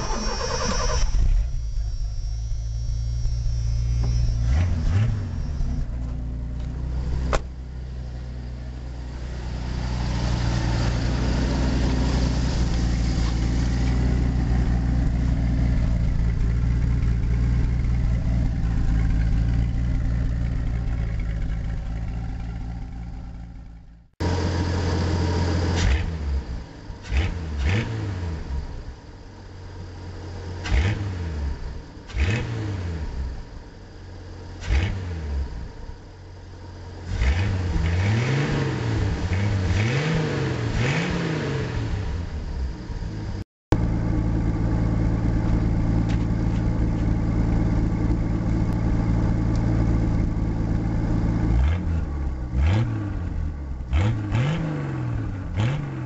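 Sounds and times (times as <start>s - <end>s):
engine running and revving: 0.0s - 7.5s, 24.2s - 28.9s, 30.4s - 33.5s, 34.6s - 35.9s, 36.9s - 43.4s, 45.2s - 56.0s.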